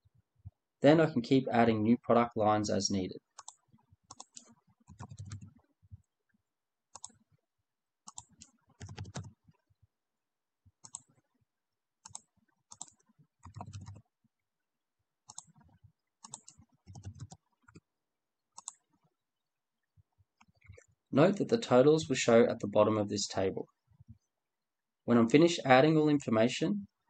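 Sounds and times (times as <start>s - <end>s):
computer keyboard typing: 3.3s - 5.6s, 6.9s - 7.2s, 8.1s - 9.6s, 10.8s - 11.2s, 12.0s - 14.1s, 15.3s - 17.9s, 18.6s - 18.9s
mouse clicks: 18.6s - 18.8s.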